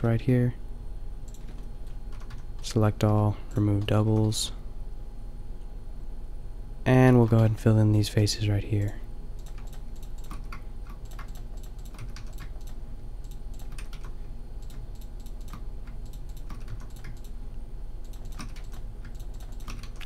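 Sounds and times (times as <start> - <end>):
keyboard and mouse clicking: 1.3 - 2.4, 9.4 - 17.4, 18.1 - 20.0.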